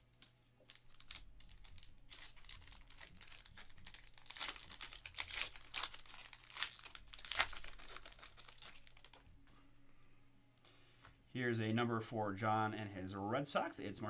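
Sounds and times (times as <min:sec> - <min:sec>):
plastic wrapper crinkling and tearing: 0:00.0 - 0:09.4.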